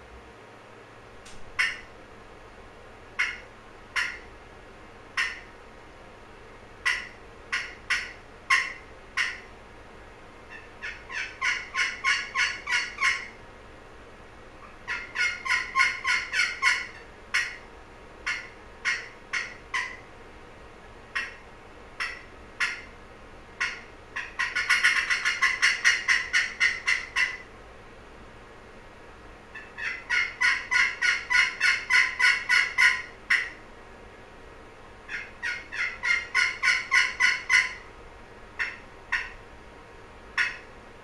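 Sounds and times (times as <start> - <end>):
turkey call scratch box notes: 5.2 - 5.4, 10.5 - 13.3, 14.9 - 17.6, 23.6 - 27.4, 29.6 - 33.5, 35.1 - 37.8, 40.4 - 40.6.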